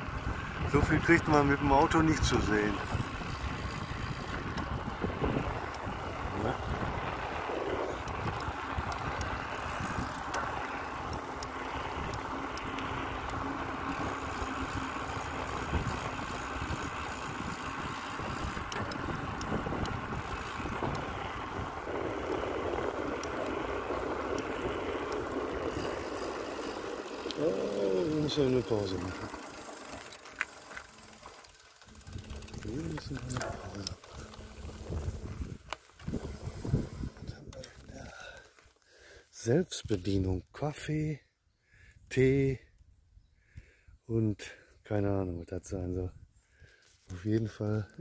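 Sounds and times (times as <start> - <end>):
tyres rumbling on asphalt: 0.0 - 38.1
wind on microphone: 34.4 - 37.6.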